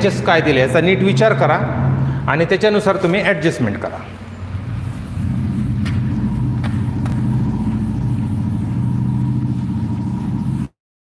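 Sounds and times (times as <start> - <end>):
low motor hum: 4.2 - 10.8
duster wiping a chalkboard: 4.6 - 10.8.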